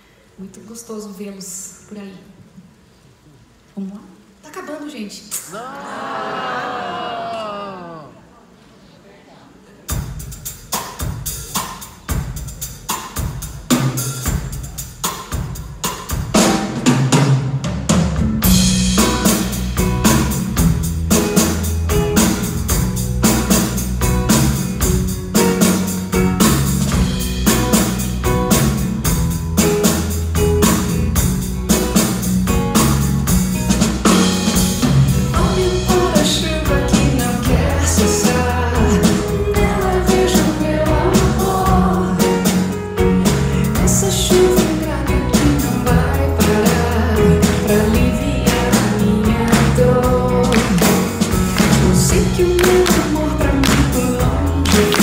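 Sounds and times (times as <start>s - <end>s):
drum kit beat: 9.9s - 55.0s
live band playing: 9.9s - 55.0s
low bass notes: 18.2s - 55.0s.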